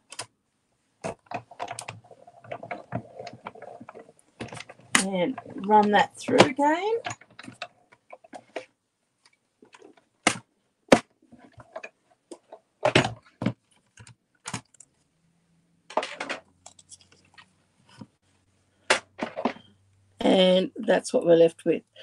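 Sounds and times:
plastic plates clacking: 0:01.0 - 0:08.7, 0:15.9 - 0:18.0.

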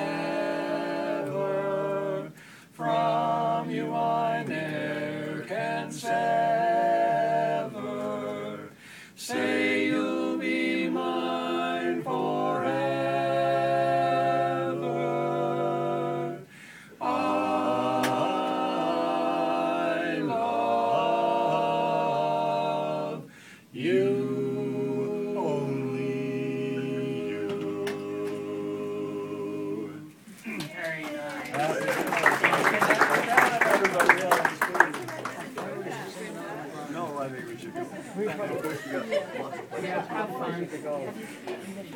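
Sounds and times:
male quartet singing a cappella: 0:00.0 - 0:30.3.

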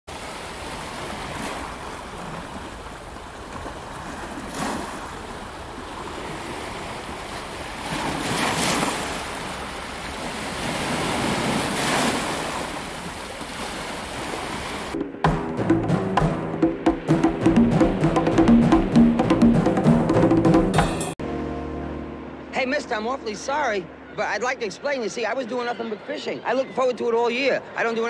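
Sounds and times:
wind: 0:00.1 - 0:19.1, 0:20.8 - 0:28.0
waves breaking on shore: 0:00.1 - 0:20.0.

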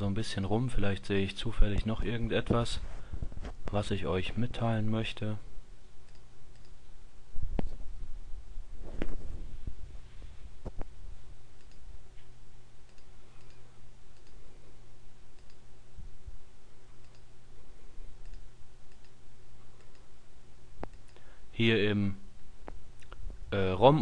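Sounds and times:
steady low hum: 0:00.0 - 0:24.0
computer mouse clicks: 0:06.1 - 0:06.8, 0:11.6 - 0:11.8, 0:12.9 - 0:14.4, 0:15.3 - 0:15.6, 0:17.0 - 0:17.3, 0:18.2 - 0:19.2, 0:19.8 - 0:20.1, 0:20.8 - 0:21.3.

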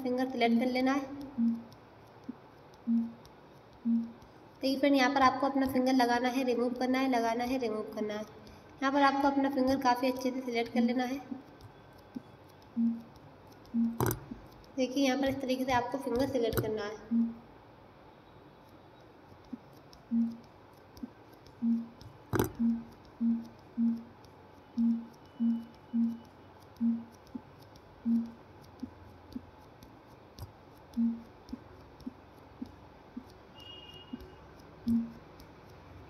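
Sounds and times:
faint ticks: 0:00.0 - 0:17.4, 0:18.6 - 0:36.0
sharp click: 0:11.5 - 0:15.4, 0:19.4 - 0:35.8
phone vibration buzzing: 0:13.8 - 0:14.3, 0:21.6 - 0:24.0, 0:24.8 - 0:26.2, 0:26.8 - 0:27.1, 0:34.9 - 0:35.2.

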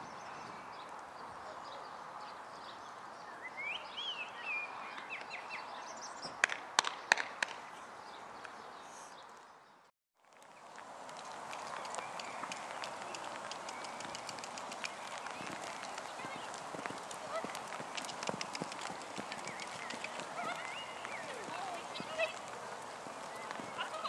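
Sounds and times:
bird chirping: 0:00.0 - 0:06.4, 0:10.6 - 0:24.0
outdoor background noise: 0:00.0 - 0:24.0
sharp clicks: 0:11.1 - 0:21.6.

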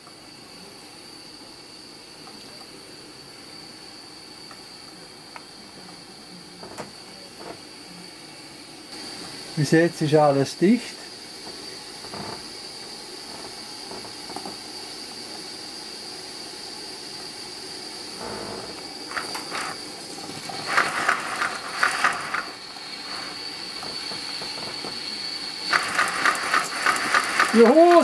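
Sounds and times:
model steam locomotive hissing: 0:00.0 - 0:28.0
sharp spitting steam puffs: 0:18.0 - 0:28.0.

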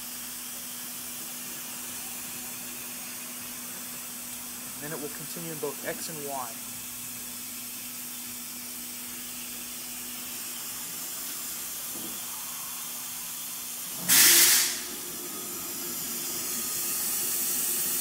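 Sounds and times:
constant hiss: 0:02.7 - 0:06.8
loud burst of hiss: 0:10.2 - 0:15.1.

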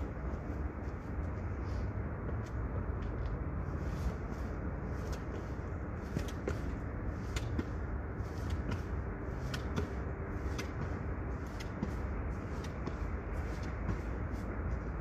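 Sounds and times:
feet tapping on steps: 0:04.9 - 0:15.0.

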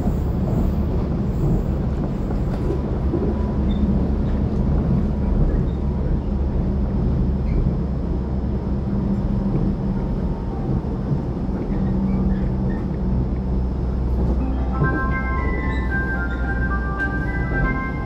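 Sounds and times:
train running rumble: 0:00.0 - 0:18.0
melody of clear tones: 0:14.4 - 0:18.0.

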